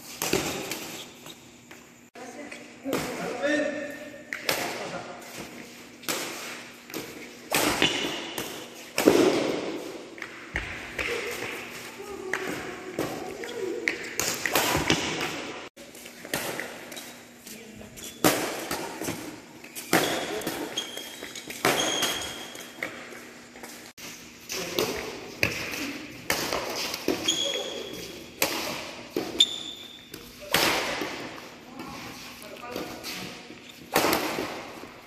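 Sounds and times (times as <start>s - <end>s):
rackets hitting a shuttlecock: 0.0s - 1.1s, 4.3s - 17.2s, 18.2s - 23.8s, 24.5s - 31.6s, 32.7s - 35.0s
sneakers squeaking on court: 0.0s - 3.2s, 16.1s - 23.8s, 25.4s - 30.5s.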